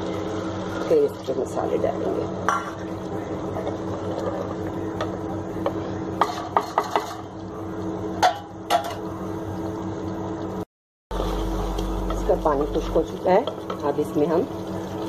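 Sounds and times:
steady low hum: 0:00.0 - 0:15.0
utensils clinking on cookware: 0:06.2 - 0:07.3.

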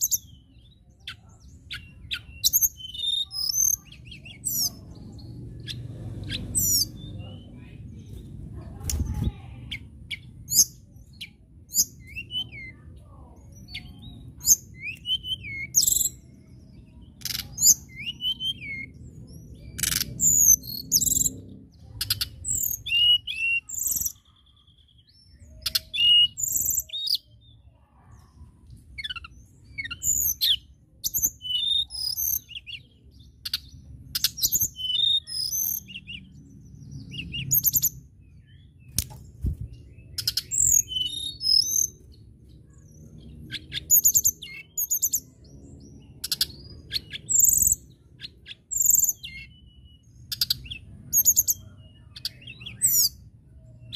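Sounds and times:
bird singing whistled notes: 0:00.0 - 0:07.5, 0:09.7 - 0:12.8, 0:13.5 - 0:21.4, 0:22.0 - 0:27.5, 0:29.0 - 0:53.9
faint low rumble: 0:03.8 - 0:14.6.

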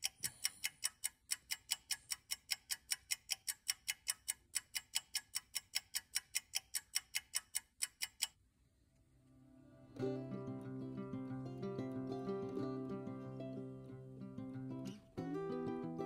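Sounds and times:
rapid clock ticking: 0:00.0 - 0:08.4.

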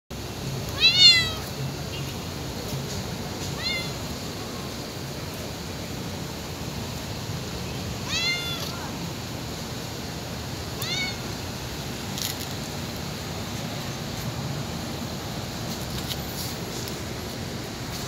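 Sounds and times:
cat meowing: 0:00.7 - 0:01.5, 0:03.5 - 0:04.0, 0:08.0 - 0:08.9, 0:10.8 - 0:11.2.

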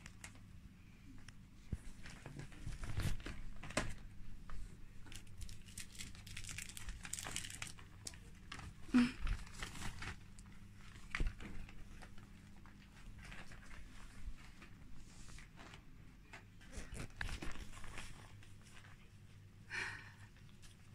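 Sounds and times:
fabric rustling and crackling: 0:01.6 - 0:07.6.

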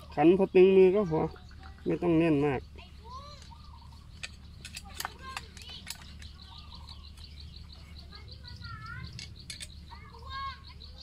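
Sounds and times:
birds chirping: 0:00.0 - 0:11.0
sharp light clicks: 0:03.4 - 0:07.3.

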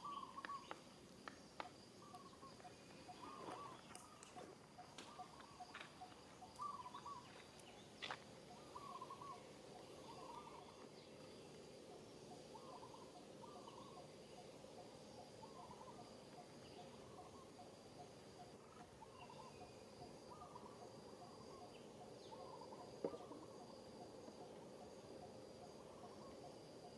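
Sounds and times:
bird warbling: 0:00.0 - 0:00.7, 0:02.1 - 0:07.4, 0:08.5 - 0:10.8, 0:11.9 - 0:17.7, 0:18.4 - 0:21.7
thin insect whine: 0:00.0 - 0:26.9.

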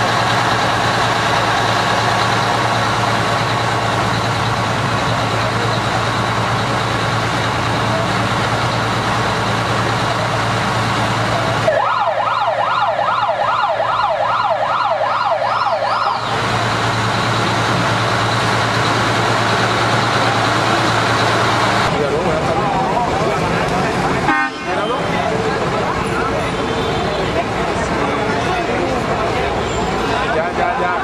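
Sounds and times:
truck engine idling: 0:00.0 - 0:31.0
fire truck siren yelping: 0:11.0 - 0:21.9.

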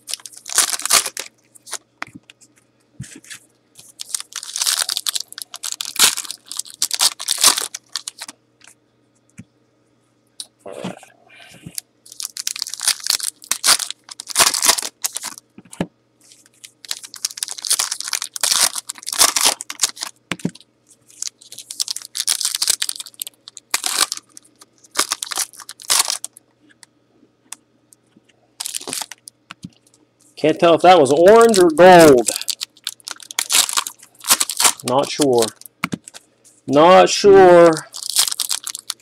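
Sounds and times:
foil wrappers tearing and crinkling: 0:00.0 - 0:01.8, 0:03.8 - 0:08.4, 0:12.1 - 0:15.4, 0:16.2 - 0:26.4, 0:28.6 - 0:29.3, 0:30.6 - 0:36.2, 0:37.1 - 0:39.0.

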